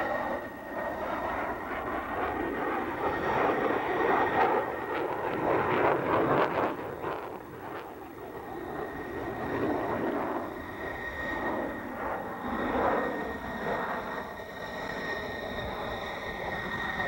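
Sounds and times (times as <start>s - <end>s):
fighter jet engine roar: 0.0s - 17.0s.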